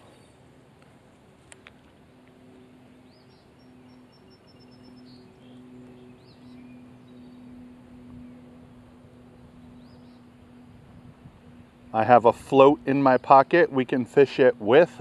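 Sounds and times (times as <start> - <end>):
birds chirping: 2.4 - 14.7.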